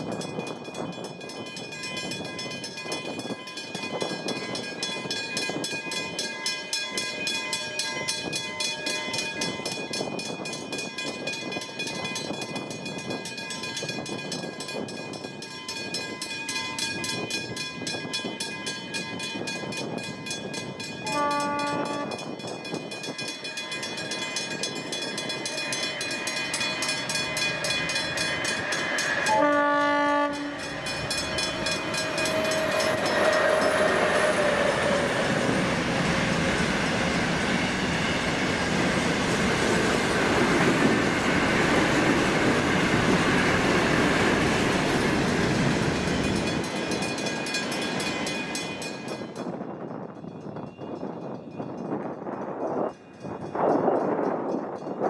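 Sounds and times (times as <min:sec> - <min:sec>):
train rumble and wheel clatter: 0:00.0 - 0:55.0
train horn: 0:21.0 - 0:22.3, 0:29.2 - 0:31.2, 0:31.9 - 0:35.1
level crossing bells ringing: 0:23.0 - 0:36.3.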